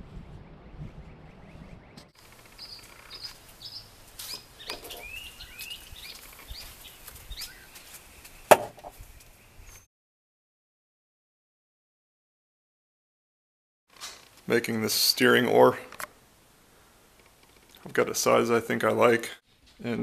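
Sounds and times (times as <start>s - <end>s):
wind noise on microphone: 0.0s - 2.1s, 5.0s - 7.6s
birds chirping: 0.1s - 9.9s
sharp knock: 8.5s - 8.9s.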